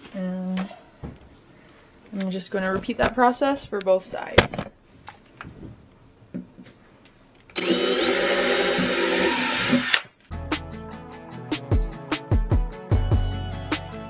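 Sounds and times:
drill boring through wood: 7.6 - 10.0
background music with a beat: 10.3 - 14.0.

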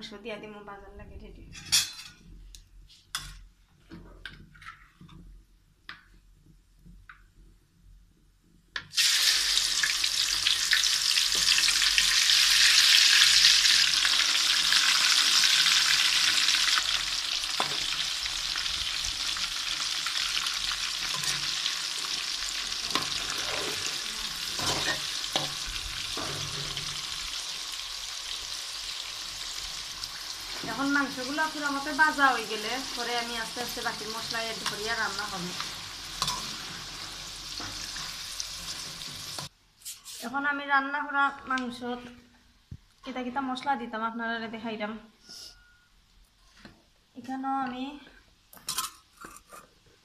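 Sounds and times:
chicken sizzling in hot oil: 8.9 - 39.5.

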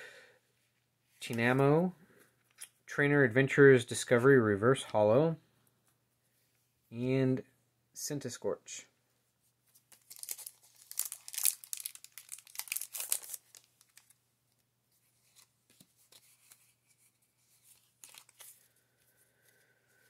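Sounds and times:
foil wrapper crinkling: 9.9 - 14.2, 17.7 - 18.7.

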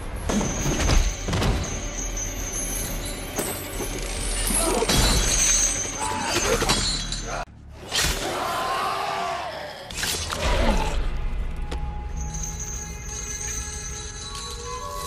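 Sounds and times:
metal chains clattering: 0.0 - 7.5, 12.1 - 15.0
dramatic score music: 0.0 - 15.0.

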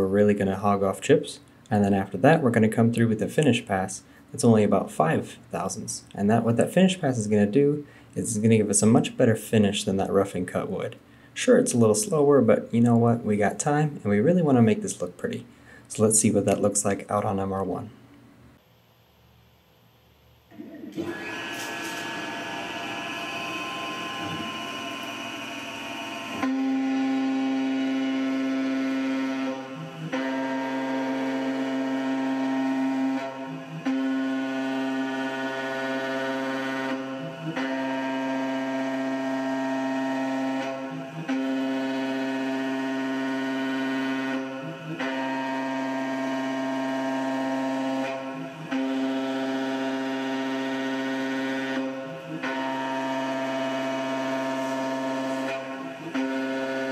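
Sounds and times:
mill spindle spinning: 20.5 - 56.9
end mill cutting metal: 21.0 - 56.9.

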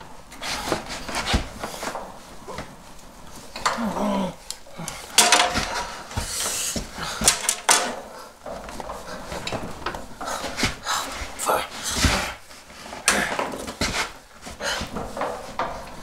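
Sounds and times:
clothing rustling: 0.1 - 16.0
glasses set down on metal: 5.2 - 5.9, 7.2 - 8.0
sharp knocks and clatters: 5.2 - 16.0.

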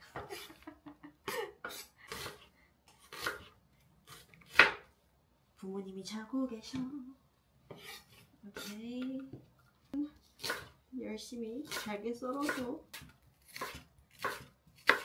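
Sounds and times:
knife chopping on wooden board: 3.0 - 3.5, 4.1 - 4.9, 11.6 - 15.0
person's voice: 8.4 - 10.2.

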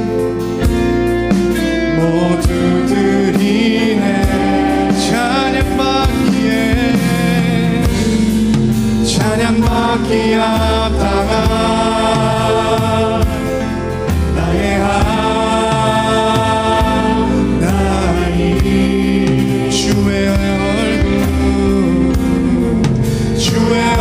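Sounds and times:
worship band playing: 0.0 - 24.0
group singing: 1.8 - 24.0.

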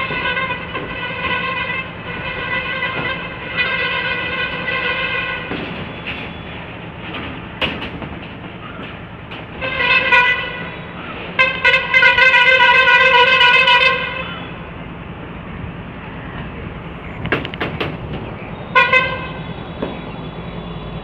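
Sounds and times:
horn blowing: 0.0 - 7.4, 9.5 - 14.7, 18.5 - 20.2.

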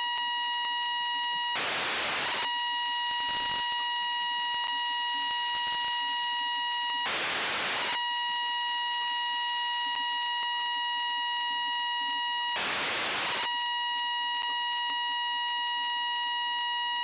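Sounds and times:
steady high radio tone: 0.0 - 17.0
receiver hiss: 1.5 - 8.0.

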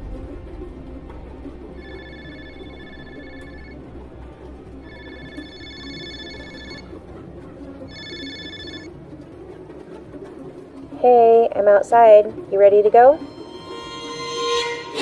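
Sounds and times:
trilling phone ringtone: 1.8 - 4.1, 4.8 - 7.0, 7.8 - 8.9.

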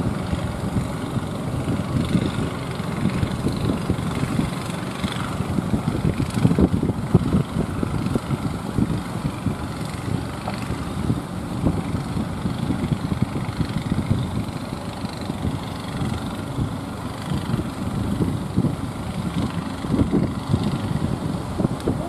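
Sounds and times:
boat engines chugging: 0.0 - 22.0.

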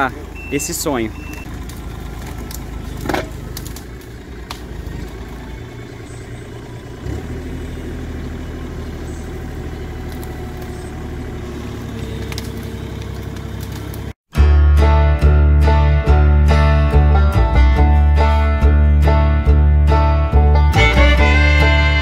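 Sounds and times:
excavator diesel engine running: 0.0 - 14.2.

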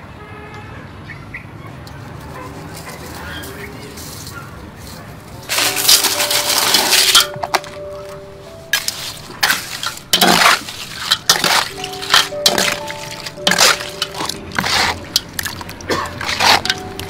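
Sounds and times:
ice clinking in metal bowl: 5.4 - 17.0.

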